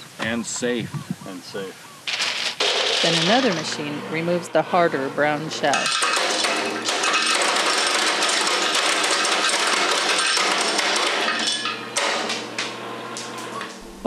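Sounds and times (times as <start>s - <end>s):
nut shells cracking and clattering: 5.8s - 13.3s.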